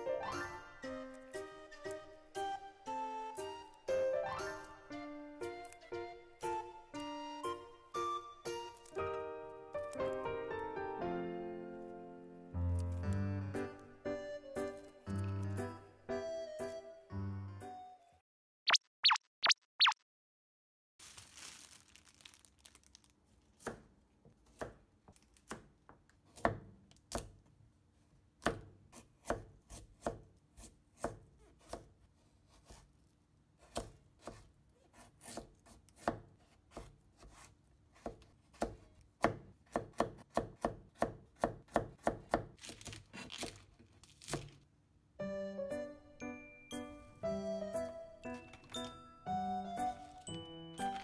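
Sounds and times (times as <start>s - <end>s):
knife chopping on plastic board: 23.6s - 27.4s, 28.4s - 32.9s, 33.6s - 44.6s.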